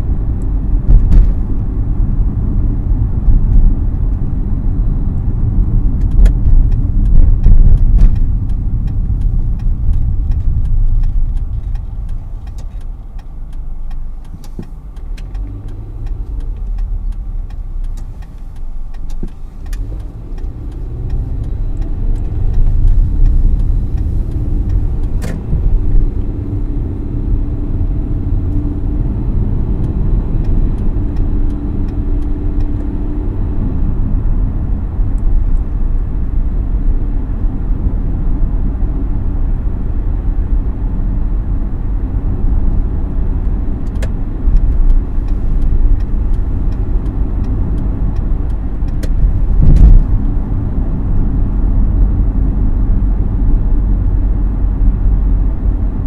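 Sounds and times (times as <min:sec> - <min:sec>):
car road noise from inside: 0:00.0 - 0:56.0
loud thump: 0:00.8 - 0:01.5.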